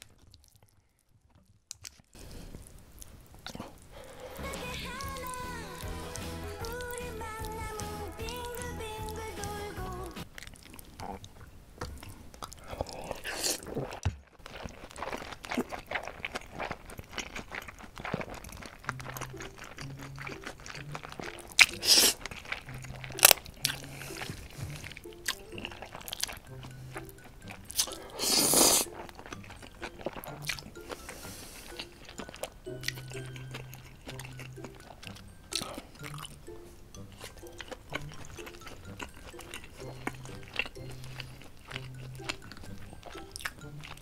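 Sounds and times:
wet chewing and crunching: 0.0 - 44.0
noodle slurping: 12.1 - 36.4, 37.0 - 44.0.

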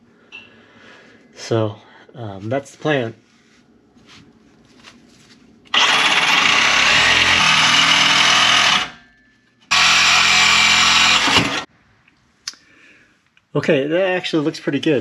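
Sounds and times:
reciprocating saw cutting metal pipe: 5.7 - 9.1, 9.7 - 11.7.

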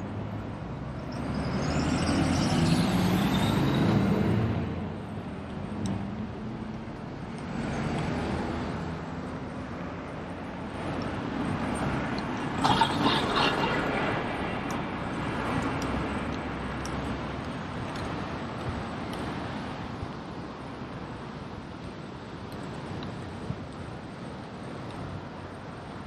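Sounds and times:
vehicles passing: 0.0 - 26.0.

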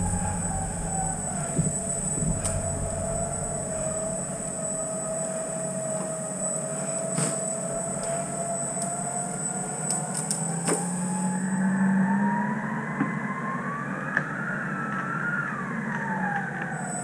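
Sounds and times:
electric winch motor whining: 0.0 - 11.6.

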